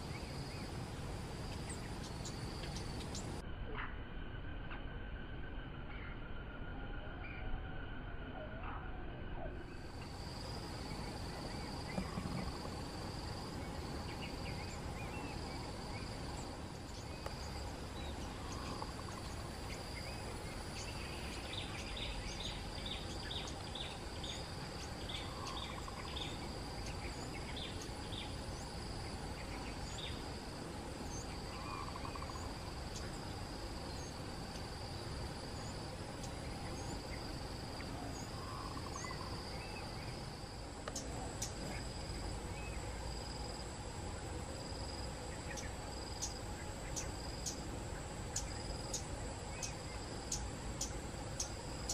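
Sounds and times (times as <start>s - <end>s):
high insect drone: 0.0s - 3.4s, 9.3s - 51.9s
soft low bird call: 5.8s - 28.4s, 37.8s - 40.2s.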